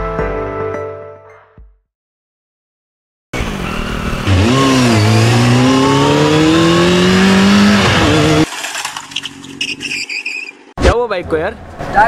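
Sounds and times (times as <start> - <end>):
motorcycle engine accelerating: 3.4 - 8.5
quiet street background: 9.0 - 12.0.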